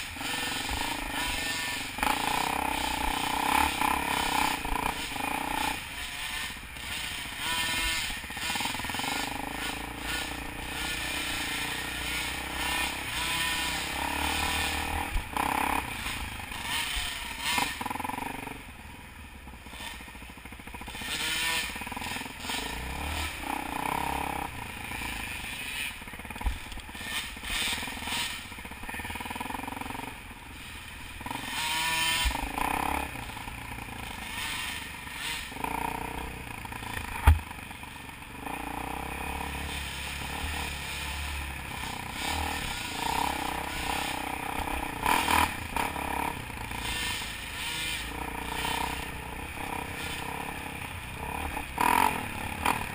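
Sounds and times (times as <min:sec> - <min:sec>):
dirt bike engine revving: 0:00.0 - 0:52.9
sharp knocks: 0:37.2 - 0:37.5.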